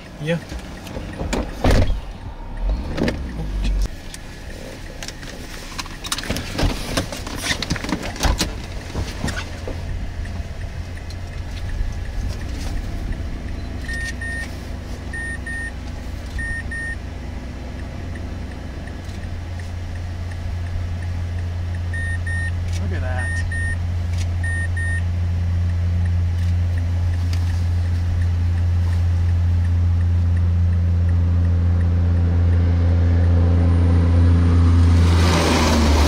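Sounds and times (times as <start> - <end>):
car engine and road drone: 0.0 - 36.0
knocks and clatter in car: 0.4 - 2.0
electronic double beep: 13.5 - 14.5, 15.1 - 15.8, 16.4 - 17.0, 21.9 - 22.6, 23.2 - 23.8, 24.4 - 25.0.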